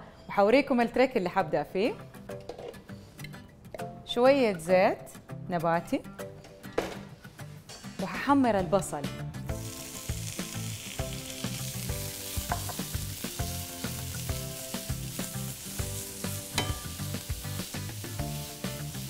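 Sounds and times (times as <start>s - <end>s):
onion sizzling in oil: 9.5s - 19.0s.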